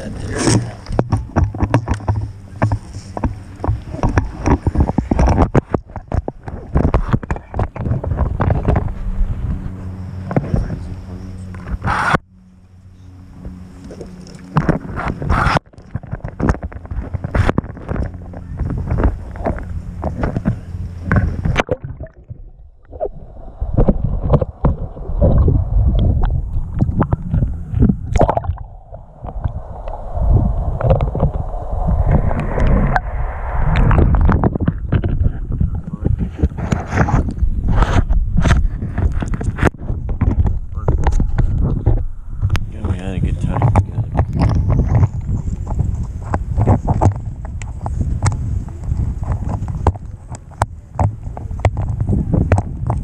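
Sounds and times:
knocks and splashes: 0.0s - 8.9s, 15.8s - 35.2s
water sloshing and gurgling: 0.0s - 12.2s, 13.1s - 53.0s.

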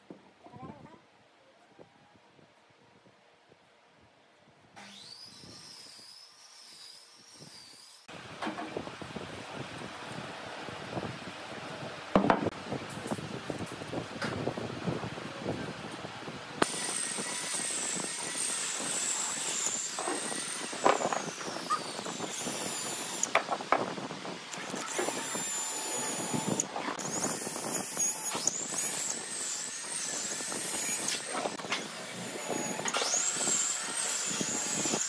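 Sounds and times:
drill boring into wood: 4.8s - 8.0s, 16.6s - 23.8s, 24.5s - 35.0s.

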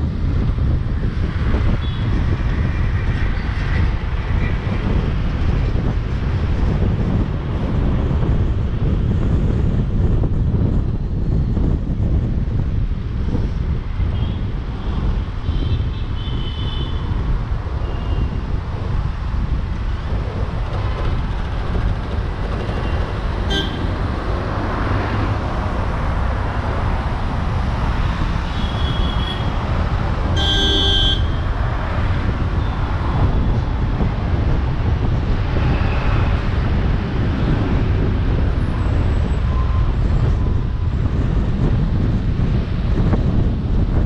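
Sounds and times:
road and wind noise: 0.0s - 44.0s
car horns honking: 22.8s - 24.0s, 28.5s - 29.5s, 30.3s - 31.5s.

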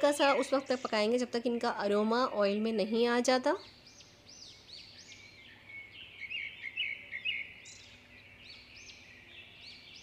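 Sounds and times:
bird chirps: 0.0s - 10.0s.

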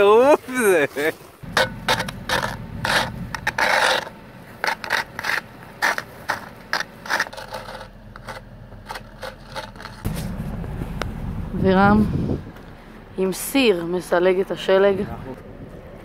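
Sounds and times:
scraping frost off windshield: 0.6s - 11.0s
low steady rumble: 1.4s - 16.0s.

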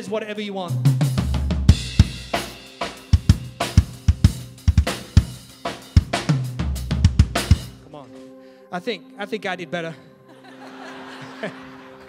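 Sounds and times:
cymbals ringing: 1.8s - 6.2s.

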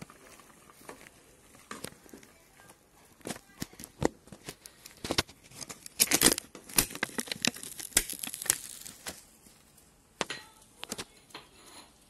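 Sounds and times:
wooden spoon stirring in metal pot: 0.0s - 3.4s.

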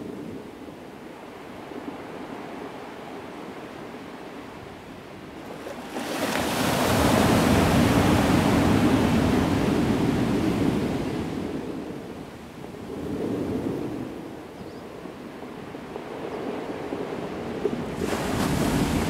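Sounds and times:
wind: 0.0s - 19.0s
wave breaking and washing up sand: 5.4s - 14.2s, 15.9s - 19.0s.

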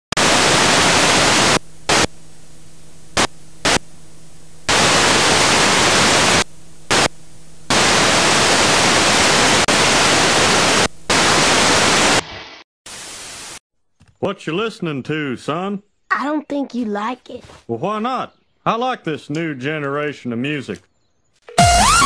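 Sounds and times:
harsh static noise bursts: 0.1s - 13.6s, 21.6s - 22.0s
low hum: 0.2s - 8.5s.

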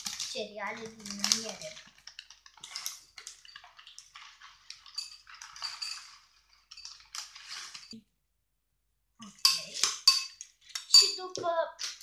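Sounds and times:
cereal pouring into bowl: 0.0s - 8.0s
plastic bag crinkling: 0.0s - 8.0s.

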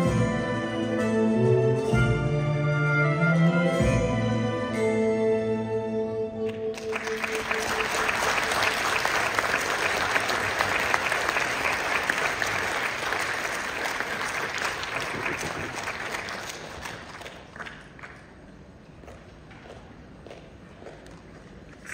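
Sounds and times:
music: 0.0s - 12.3s
audience applauding: 6.7s - 18.4s.

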